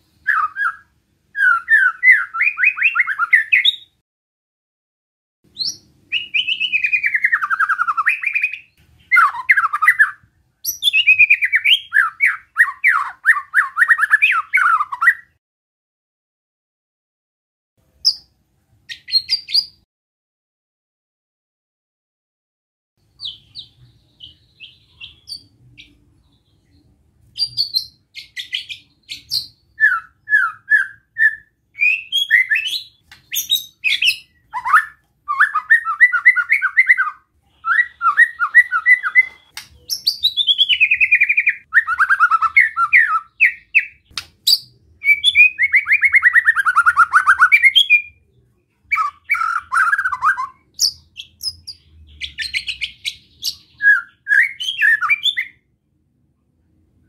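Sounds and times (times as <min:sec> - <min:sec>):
bird chirps: 0:00.0 - 0:04.0, 0:05.5 - 0:15.4, 0:17.9 - 0:19.9, 0:23.0 - 0:55.6
bird whistles and harsh trills: 0:00.0 - 0:04.0, 0:05.5 - 0:15.4, 0:18.9 - 0:19.8, 0:27.4 - 0:48.2, 0:48.9 - 0:55.6.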